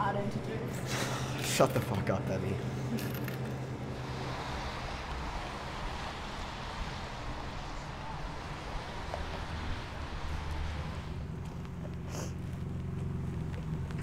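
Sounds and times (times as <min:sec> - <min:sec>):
traffic hiss and rumble: 0:00.0 - 0:14.0.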